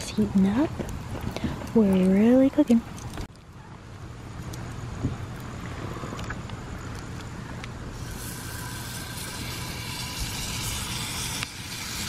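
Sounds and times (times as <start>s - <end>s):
steak sizzling in a skillet: 8.0s - 12.0s.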